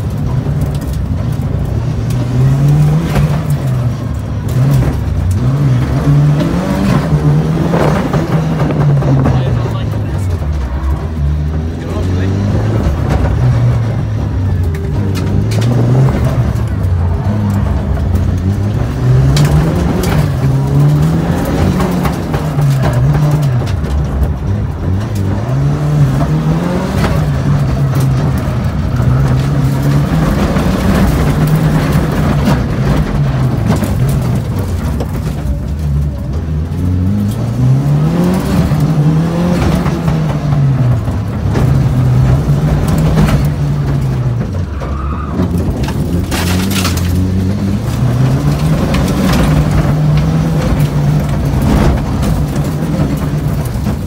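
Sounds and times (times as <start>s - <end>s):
rally car engine revving: 0.0s - 54.0s.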